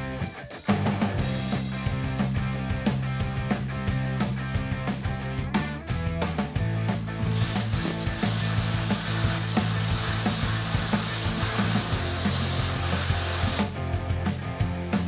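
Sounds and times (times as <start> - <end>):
background music: 0.0 - 15.0
plasma cutter hissing: 7.3 - 13.6.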